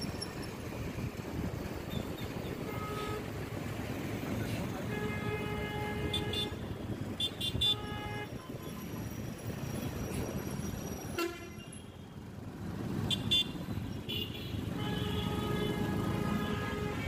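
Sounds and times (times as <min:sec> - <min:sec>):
city road traffic: 0:00.0 - 0:17.0
vehicle horns honking: 0:01.9 - 0:03.4, 0:04.8 - 0:08.8, 0:11.1 - 0:12.0, 0:13.0 - 0:17.0.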